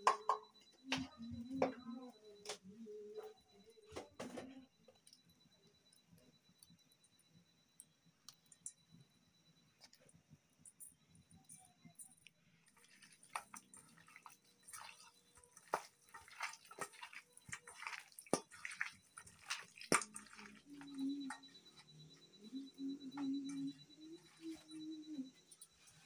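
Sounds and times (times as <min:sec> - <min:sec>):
low steady tone: 0:00.0 - 0:26.0
wet squelches and clicks: 0:04.9 - 0:09.0, 0:09.8 - 0:22.2
hands kneading wet chicken: 0:12.7 - 0:21.4.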